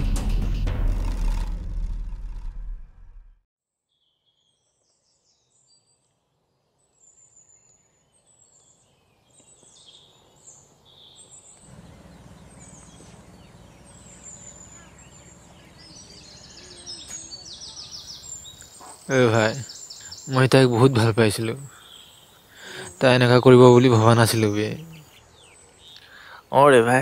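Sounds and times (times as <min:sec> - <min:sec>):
small birds chirping: 0:03.9 - 0:27.0
low background rumble: 0:11.7 - 0:16.5.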